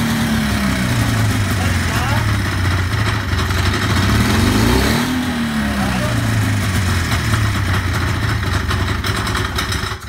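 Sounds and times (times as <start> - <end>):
snowmobile engine idling: 0.0 - 10.0.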